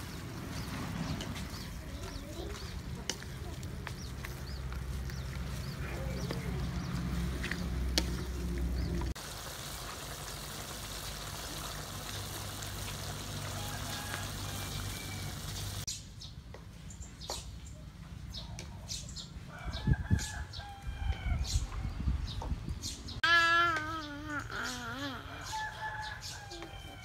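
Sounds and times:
wok simmering hiss: 8.8s - 15.9s.

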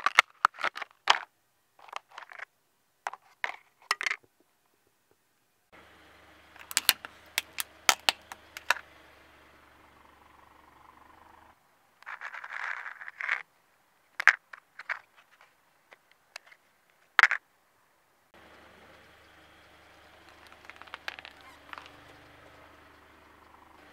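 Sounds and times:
rustle: 0.0s - 4.9s, 5.8s - 23.9s
low steady hum: 4.0s - 12.4s
plastic clicks and taps: 6.6s - 8.8s
plastic lid cracking under tyre: 6.6s - 8.8s, 20.3s - 22.0s.

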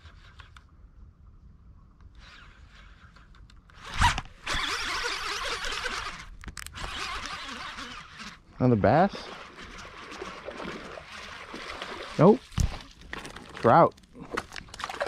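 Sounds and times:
fishing reel whirring: 3.8s - 12.2s.

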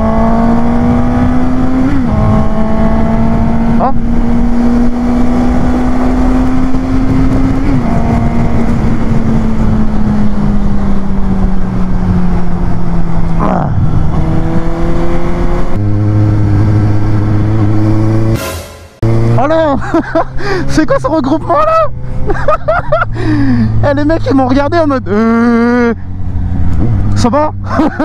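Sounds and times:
motorcycle engine: 0.0s - 20.8s.

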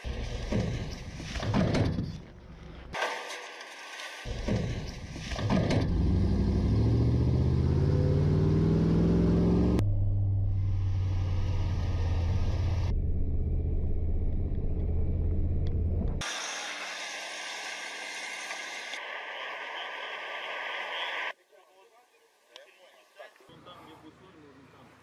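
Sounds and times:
truck engine accelerating: 4.3s - 16.3s.

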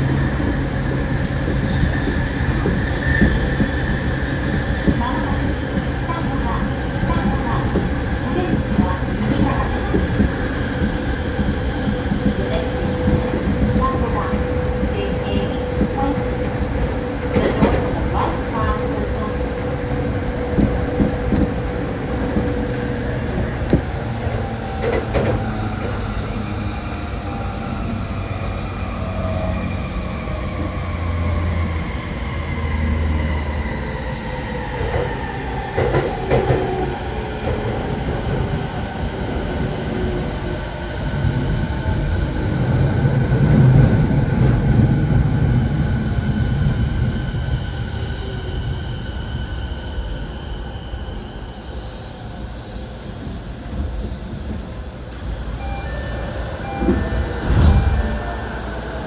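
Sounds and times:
train running noise: 0.0s - 59.0s.

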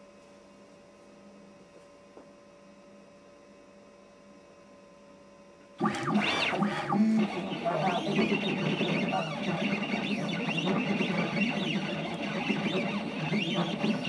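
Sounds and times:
faint electrical hum: 0.0s - 10.5s
stepper motors whining: 5.8s - 14.0s.

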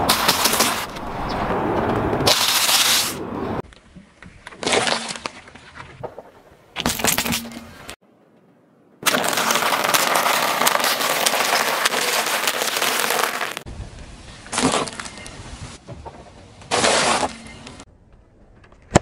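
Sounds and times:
tyre crushing waffle cones: 9.0s - 13.6s.

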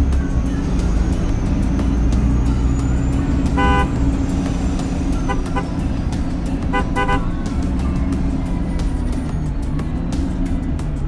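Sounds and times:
low vehicle engine rumble: 0.0s - 11.0s
car horn tooting: 3.4s - 4.2s, 5.1s - 6.0s, 6.6s - 7.5s.

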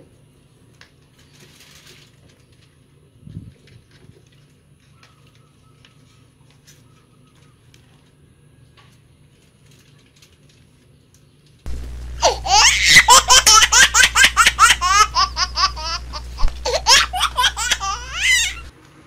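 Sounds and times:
high-pitched laughter: 12.2s - 18.7s.

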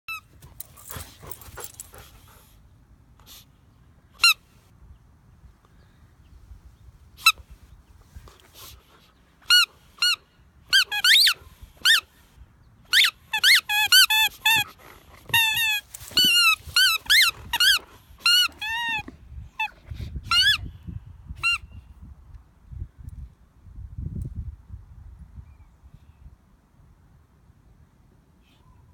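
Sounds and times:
squeaky toy squeaking: 4.2s - 4.4s, 9.4s - 12.0s, 12.9s - 20.6s, 21.4s - 21.6s.

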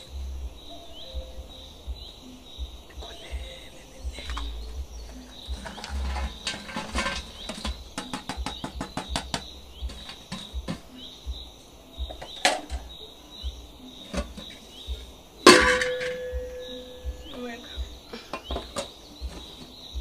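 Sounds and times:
bird chirping: 0.0s - 20.0s
metal box clicks and rattles: 5.5s - 10.9s, 12.1s - 12.8s, 15.4s - 16.7s, 18.3s - 19.7s.

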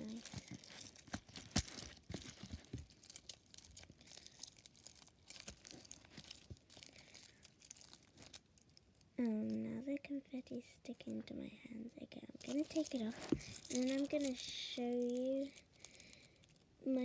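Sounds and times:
slime with foil being squeezed: 0.0s - 9.2s, 12.4s - 16.7s
faint crinkling and clicks: 0.0s - 17.0s.

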